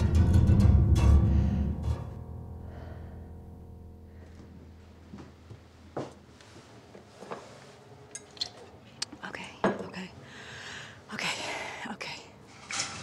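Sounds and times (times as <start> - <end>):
low sustained musical chord: 0.1 - 6.7.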